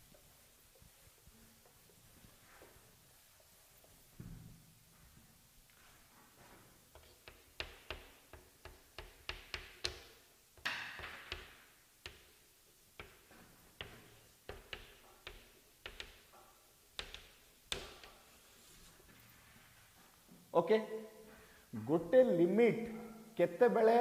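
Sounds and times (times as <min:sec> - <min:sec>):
chalk tapping on chalkboard: 0:06.9 - 0:12.4, 0:13.0 - 0:18.4.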